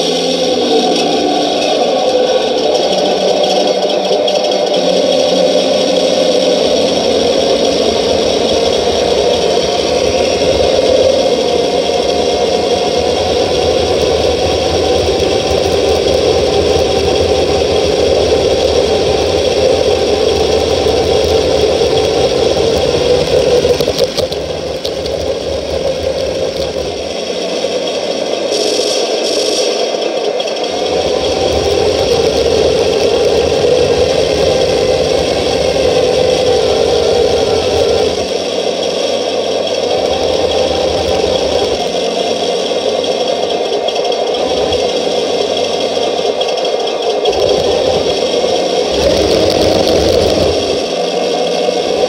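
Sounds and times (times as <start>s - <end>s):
model tank gearing whir: 0.0s - 52.0s
tank tracks rattling: 0.1s - 51.0s.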